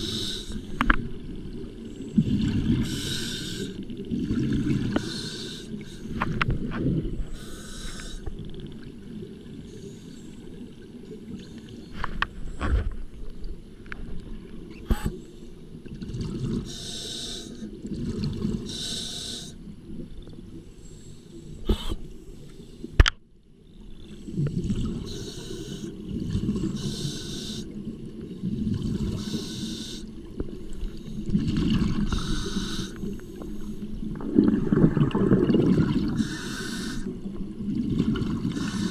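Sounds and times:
hissing regulator inhalations: 0.0 - 0.8, 2.8 - 3.8, 4.9 - 6.2, 7.3 - 8.3, 16.6 - 17.6, 18.7 - 19.6, 25.0 - 26.0, 26.8 - 27.8, 29.2 - 30.1, 32.1 - 33.9, 36.2 - 37.2, 38.5 - 38.9
bubbling exhalations: 34.2 - 36.4.

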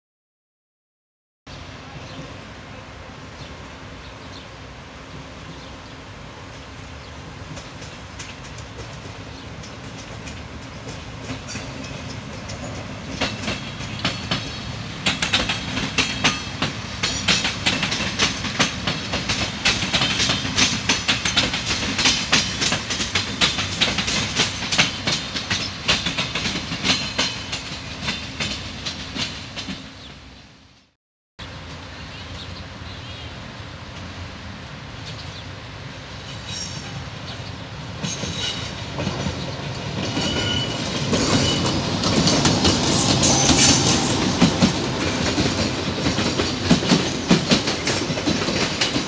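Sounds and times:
low train engine hum: 1.5 - 49.0
train wheels clicking over joints: 7.4 - 30.0, 37.9 - 49.0.

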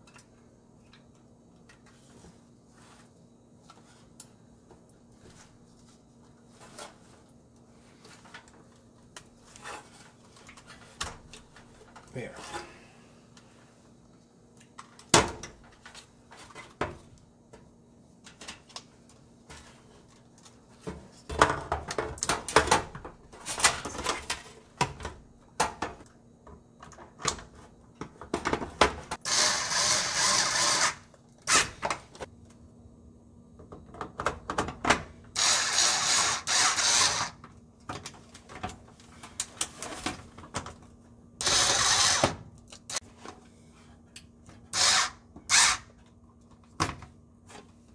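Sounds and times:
cordless drill driving screws: 29.2 - 31.7, 35.4 - 37.4, 41.4 - 42.3, 44.7 - 45.9.

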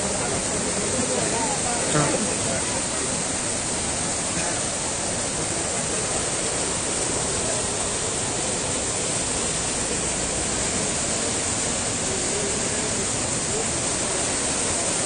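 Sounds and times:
floodwater rushing: 0.0 - 15.0.

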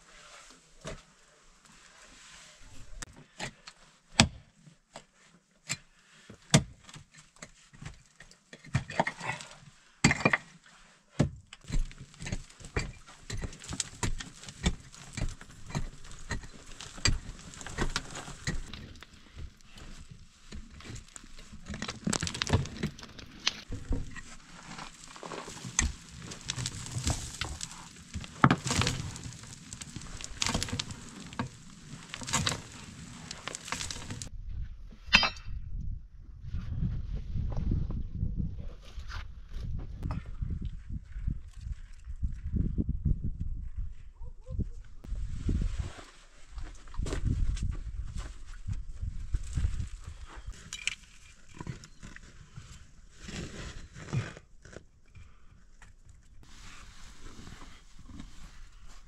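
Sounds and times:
digging stony earth: 0.0 - 35.8, 45.0 - 59.0
soil and grit pattering: 11.3 - 34.3, 38.6 - 59.0
stones clinking together: 11.6 - 19.2, 20.6 - 34.3.

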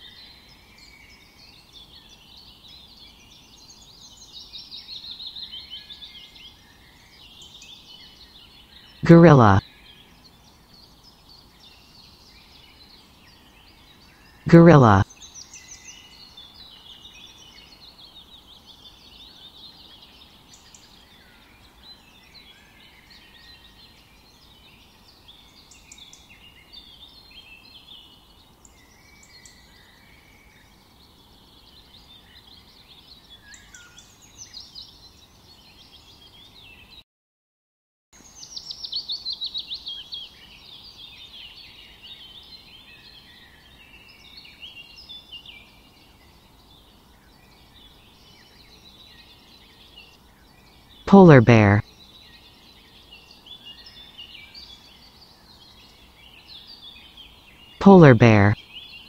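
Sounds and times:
birds singing and chirping: 51.9 - 57.8.

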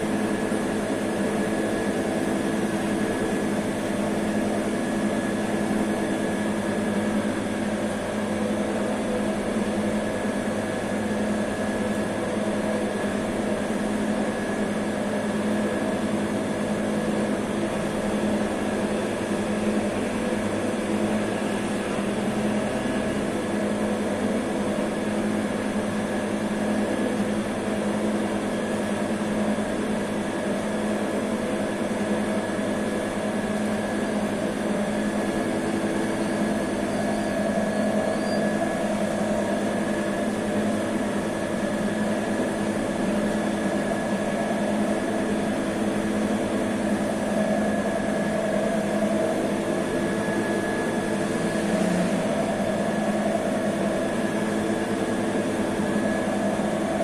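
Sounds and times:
bakery machinery hum: 0.0 - 57.0.

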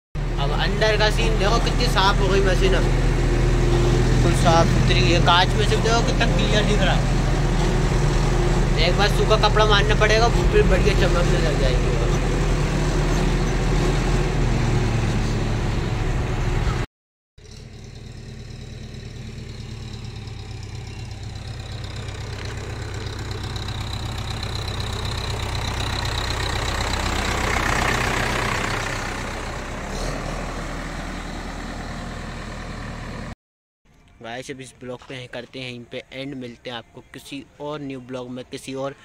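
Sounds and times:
diesel engine running: 0.2 - 33.4.

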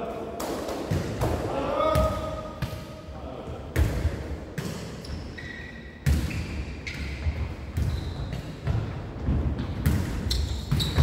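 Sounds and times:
ball hits echoing in hall: 0.0 - 5.1, 5.7 - 11.0
sports shoes squeaking: 5.0 - 8.7, 9.6 - 11.0.

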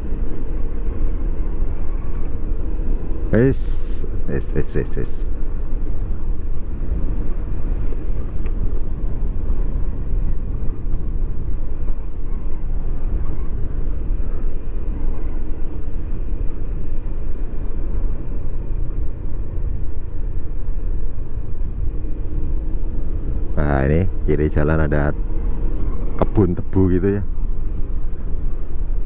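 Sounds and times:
scooter road noise: 0.0 - 24.3
wind buffeting microphone: 5.2 - 29.0.

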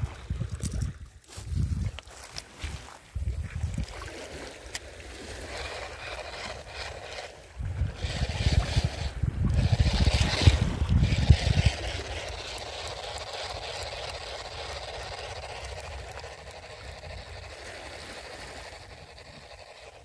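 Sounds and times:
wind buffeting microphone: 0.0 - 4.5, 5.1 - 19.8
water sounds: 0.0 - 20.0.

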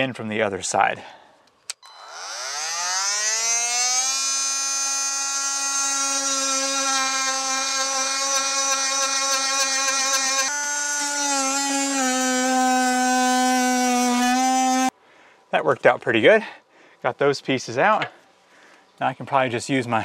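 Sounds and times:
oscillating multi-tool cutting: 1.7 - 14.9.

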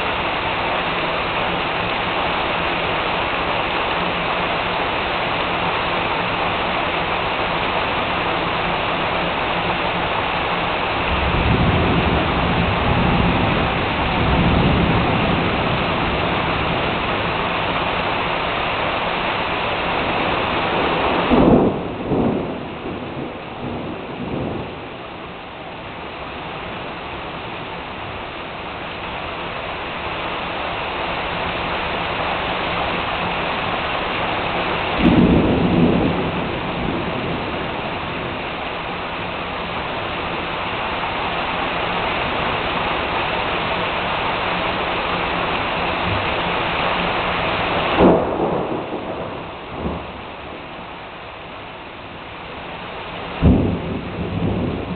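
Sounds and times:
heavy rain pouring: 0.0 - 54.9
thunder claps: 10.8 - 18.0, 20.1 - 25.3, 32.8 - 40.0, 45.7 - 51.0, 53.3 - 54.9.

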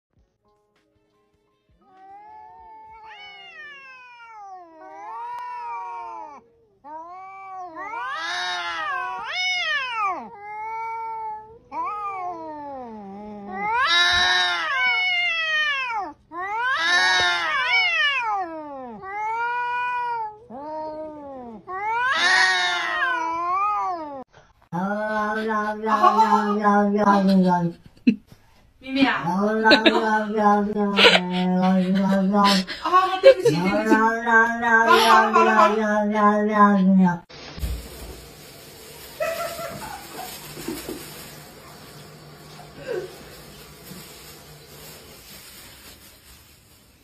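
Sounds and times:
cats yowling: 1.9 - 24.2.

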